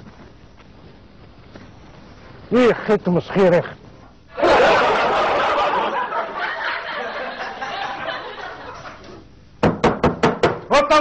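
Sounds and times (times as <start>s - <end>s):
studio audience laughter: 4.4s - 9.2s.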